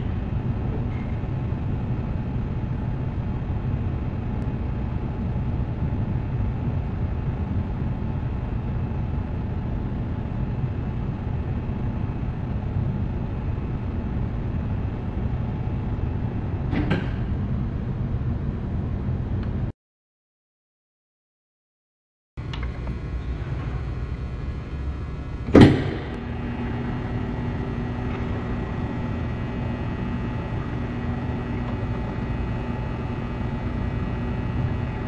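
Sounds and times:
small lathe humming: 22.4 - 35.0.

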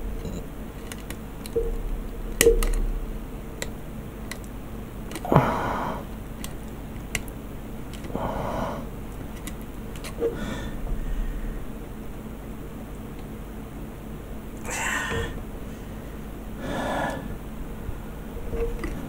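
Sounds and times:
light clicks of plastic parts: 0.3 - 1.7, 6.4 - 8.2, 9.1 - 10.4.

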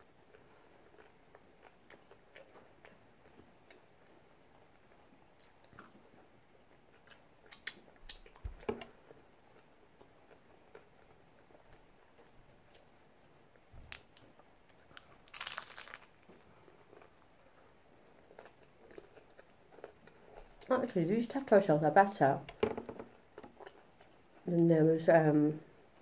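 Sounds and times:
person chewing food: 0.0 - 20.7, 23.0 - 24.5
wet mouth clicks: 7.5 - 8.4.

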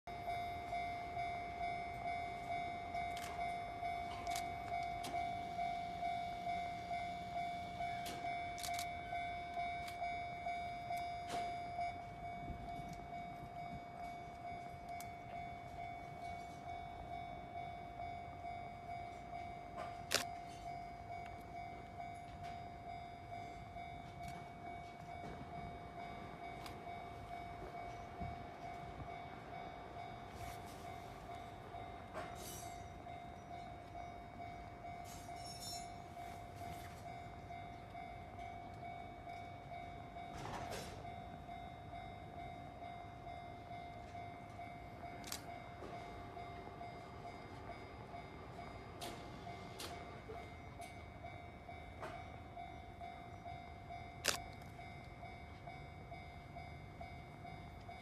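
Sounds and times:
level crossing bell ringing: 0.1 - 58.0
sharp clicks: 54.2 - 54.8.

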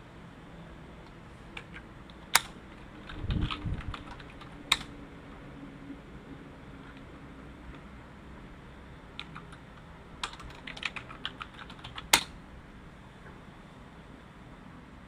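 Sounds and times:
computer keyboard typing: 1.5 - 5.0, 9.2 - 12.4
hard keystroke on enter key: 2.4 - 4.9.

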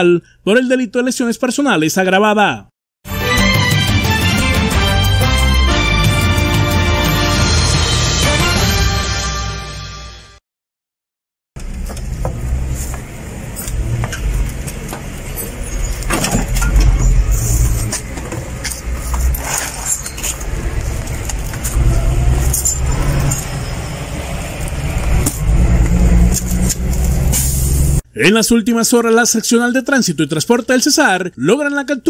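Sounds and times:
low rumble of traffic: 11.6 - 28.0.

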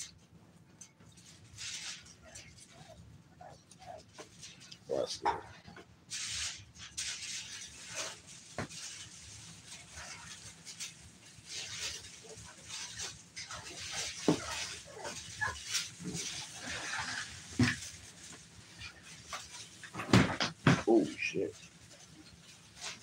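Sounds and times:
paws scuffling and scratching: 0.1 - 23.0
puppies grunting and yipping: 11.5 - 18.0.

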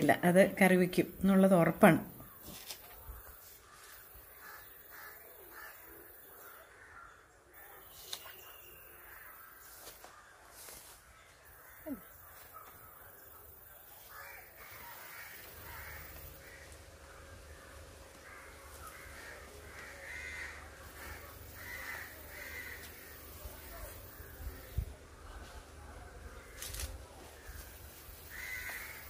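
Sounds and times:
crows cawing: 3.2 - 7.9, 8.7 - 10.7, 14.0 - 24.8, 27.4 - 29.0.

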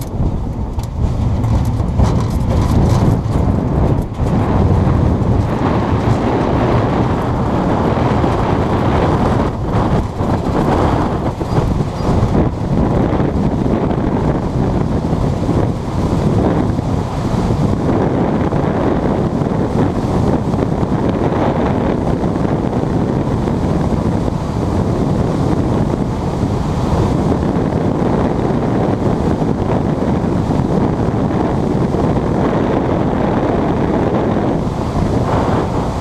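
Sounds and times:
airflow buffeting microphone: 0.0 - 36.0.

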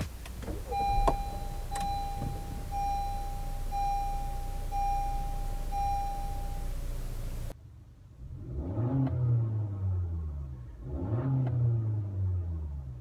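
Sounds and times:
low car rumble: 0.0 - 13.0
seat-belt reminder chime: 0.5 - 6.9.

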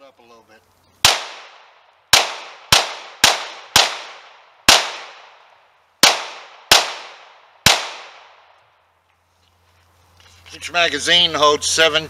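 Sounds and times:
pistol shots with echo: 1.0 - 5.4, 6.0 - 8.5.

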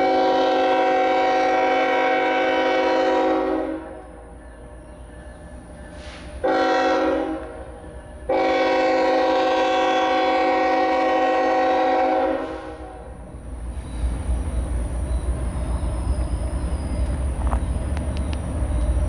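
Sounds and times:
locomotive air horn blasts: 0.0 - 4.2, 6.4 - 7.7, 8.3 - 13.2
low engine rumble: 12.6 - 19.0.

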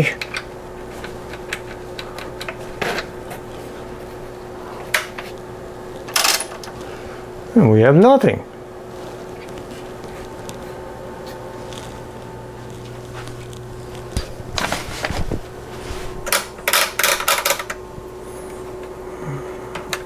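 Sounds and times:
oscilloscope hum: 0.0 - 20.0
switches clicking: 0.2 - 3.1.

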